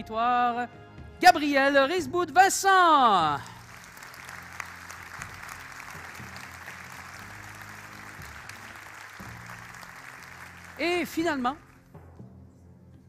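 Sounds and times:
soft background music: 0.0 - 13.0
audience applauding: 3.4 - 11.9.

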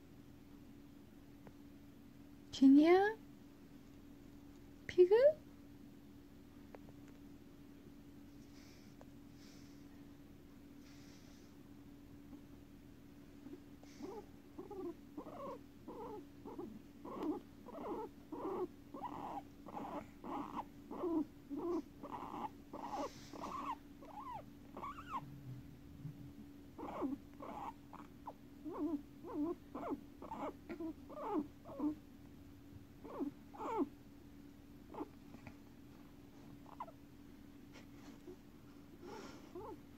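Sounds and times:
steady low hum: 0.0 - 39.9
guinea pigs squeaking: 13.8 - 25.3, 26.8 - 32.0, 33.0 - 33.9, 34.9 - 35.2, 36.6 - 37.0, 39.1 - 39.8.

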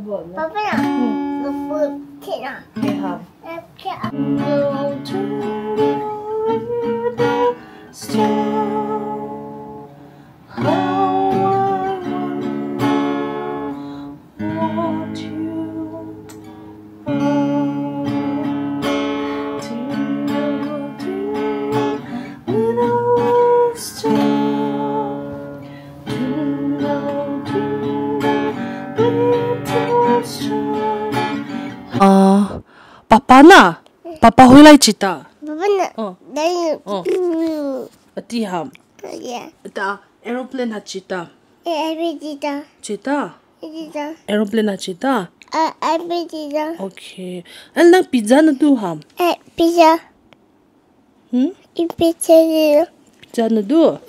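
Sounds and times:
acoustic guitar strumming chords: 0.5 - 32.3
person singing: 4.2 - 9.9, 10.5 - 13.8, 14.4 - 16.4, 17.1 - 32.6.

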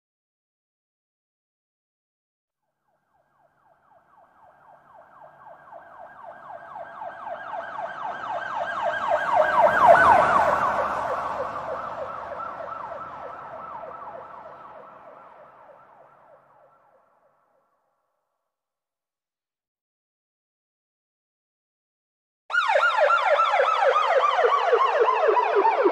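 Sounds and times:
police siren yelping: 3.1 - 16.9, 22.5 - 25.9.

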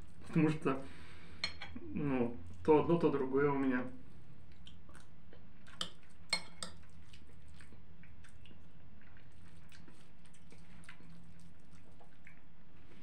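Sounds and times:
quiet chewing: 2.4 - 2.7, 4.0 - 13.0.

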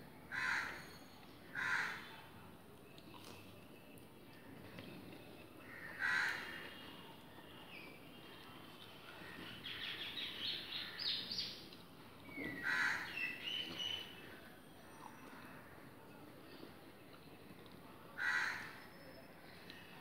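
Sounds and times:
crow cawing: 0.3 - 0.8, 1.6 - 2.0, 5.6 - 6.5, 12.6 - 13.1, 18.2 - 18.8.

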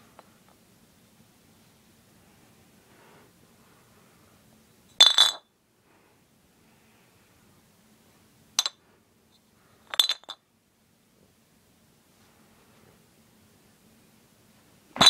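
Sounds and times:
glass bottles clinking: 5.0 - 5.4, 9.9 - 10.4.

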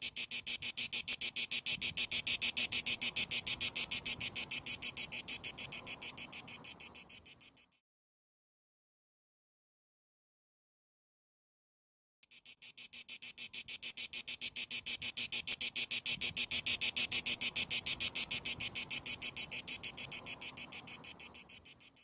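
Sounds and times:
cicada buzzing: 0.0 - 7.8, 12.2 - 22.0.

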